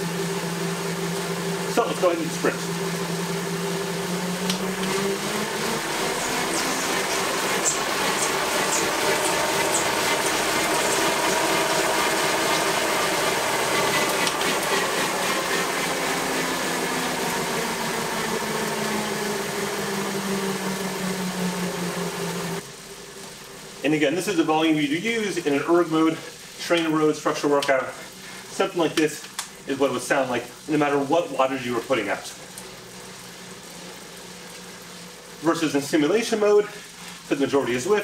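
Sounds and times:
bike tyre whirring on rollers: 0.0 - 23.8.

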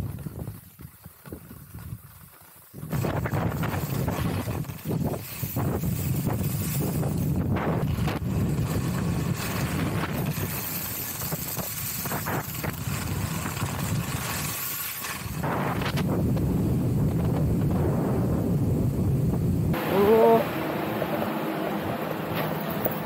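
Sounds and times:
skis scraping over snow: 0.0 - 18.4
wind rumble on microphone: 0.0 - 20.3.

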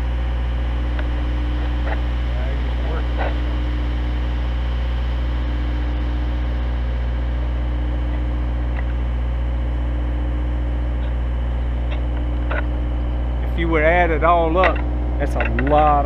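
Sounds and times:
engine humming steadily: 0.0 - 16.0.

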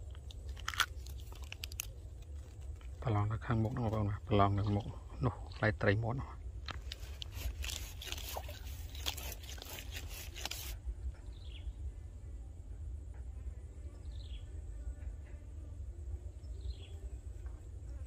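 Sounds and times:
fishing pole rustling in grass: 0.0 - 5.0, 6.5 - 10.9.

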